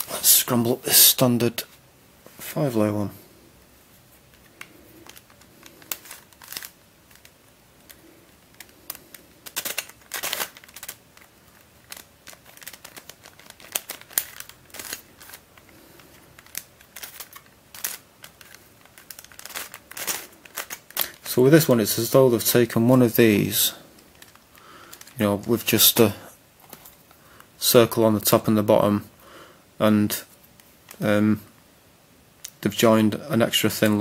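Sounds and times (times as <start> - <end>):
plastic puzzle clicking and clacking: 4.4 - 21.2.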